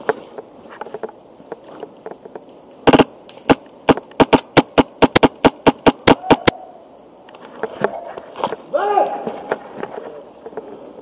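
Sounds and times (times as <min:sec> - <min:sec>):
airsoft rifle shots: 0:02.8 - 0:06.6.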